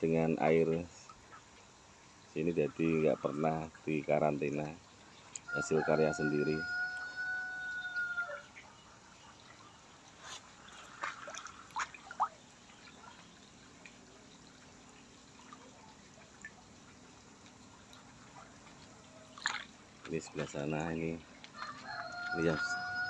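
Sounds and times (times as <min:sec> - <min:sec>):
water drips and splashes: 0:00.0 - 0:23.0
water bubbling from aerators: 0:09.4 - 0:22.0.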